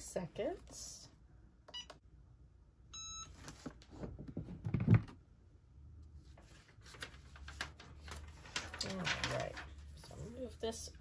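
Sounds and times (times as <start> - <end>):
paper sheets rustling: 6.2 - 10.6.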